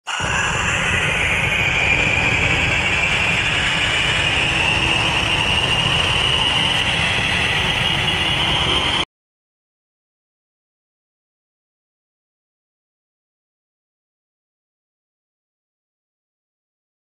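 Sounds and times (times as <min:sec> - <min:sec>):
jet engine roar: 0:00.0 - 0:09.1
high rising whine: 0:00.1 - 0:09.1.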